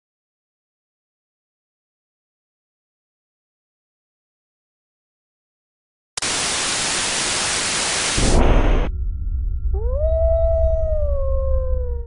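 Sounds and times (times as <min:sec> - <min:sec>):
loud static hiss: 0:06.2 - 0:08.9
low rumble: 0:08.2 - 0:12.0
long howl: 0:09.7 - 0:12.0.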